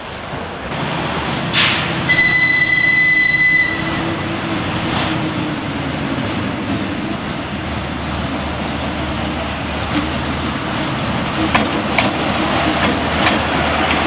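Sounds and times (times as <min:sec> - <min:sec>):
diesel locomotive engine running: 0:00.0 - 0:14.0
train horn: 0:02.1 - 0:04.2.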